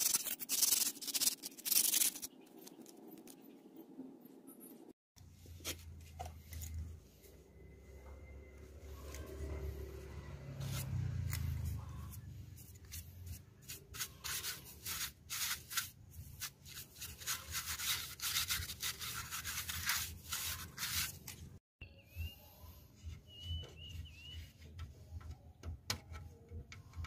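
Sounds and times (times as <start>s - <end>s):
stiff brush scrubbing plastic: 0.0s - 3.2s, 10.6s - 21.6s.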